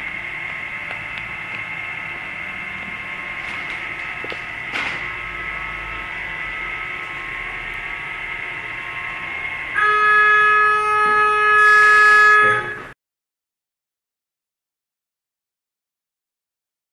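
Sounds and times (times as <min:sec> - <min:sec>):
metal detector conveyor humming: 0:00.0 - 0:13.0
electronic alarm tone: 0:09.8 - 0:13.0.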